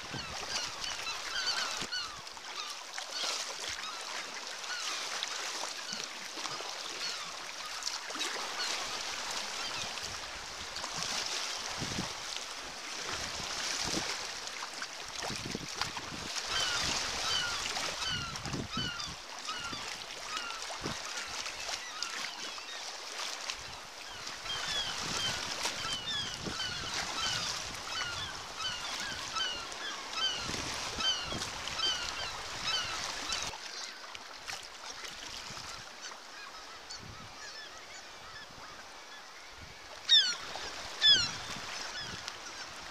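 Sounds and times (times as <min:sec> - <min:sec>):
seabird colony calling: 0:00.0 - 0:04.9, 0:16.4 - 0:22.8, 0:24.0 - 0:33.8, 0:40.1 - 0:42.9.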